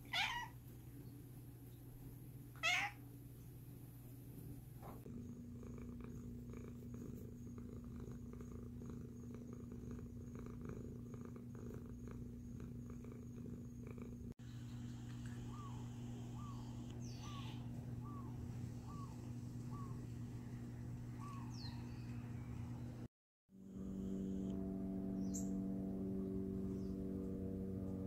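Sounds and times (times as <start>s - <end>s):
cat purring: 4.0s - 22.9s
bird chirping: 15.3s - 20.1s, 21.2s - 23.0s, 25.2s - 25.6s.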